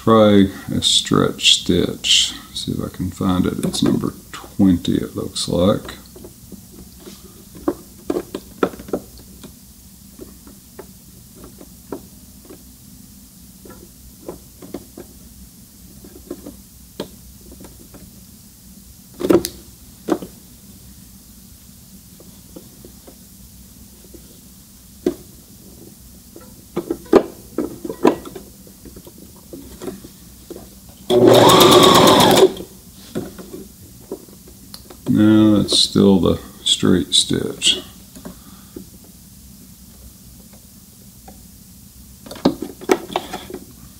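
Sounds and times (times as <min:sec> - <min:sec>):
sewing machine stitching: 0:31.1 - 0:32.6.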